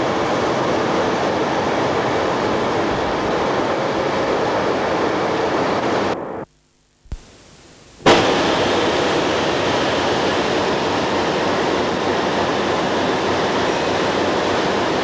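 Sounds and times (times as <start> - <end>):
diesel locomotive running: 8.1 - 15.0.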